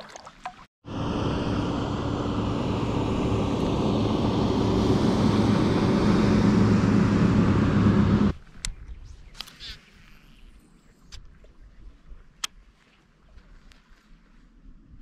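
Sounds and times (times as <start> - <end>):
boat engines droning: 0.8 - 8.4.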